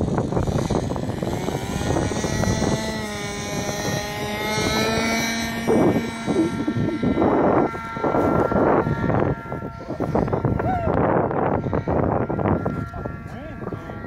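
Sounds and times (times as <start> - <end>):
model plane engine and propeller: 0.0 - 14.0
wind noise on microphone: 0.0 - 14.0.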